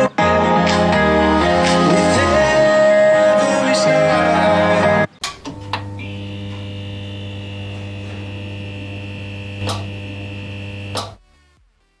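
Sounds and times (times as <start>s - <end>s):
electrical mains hum: 5.2s - 11.2s
high buzzing tone: 5.3s - 11.2s
electrical crackles: 5.8s - 11.2s.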